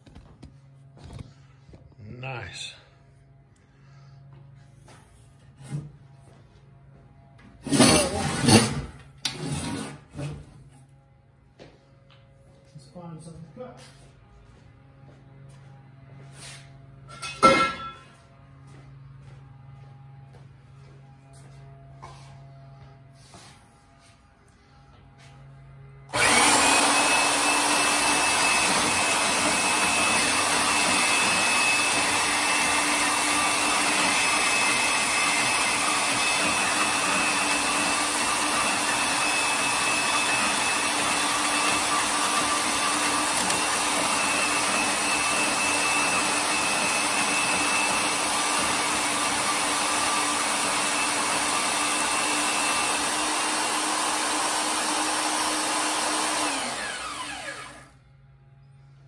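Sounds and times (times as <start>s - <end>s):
band saw cutting metal: 7.6s - 10.3s, 26.1s - 57.9s
saw winding down: 26.1s - 58.0s.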